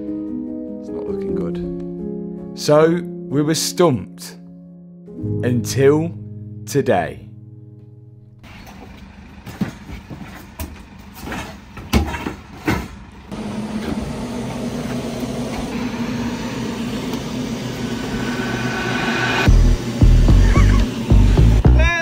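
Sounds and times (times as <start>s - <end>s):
low mechanical drone: 13.2s - 21.8s.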